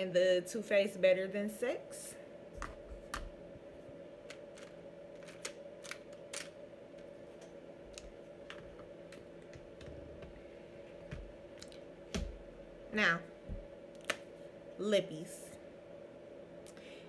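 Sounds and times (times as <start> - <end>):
steady low hum: 0.0 - 17.0
plastic packaging clicks: 4.3 - 6.6.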